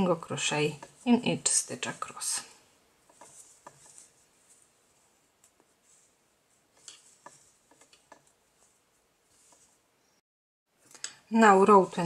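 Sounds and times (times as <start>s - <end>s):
crochet hook working yarn: 3.0s - 9.9s.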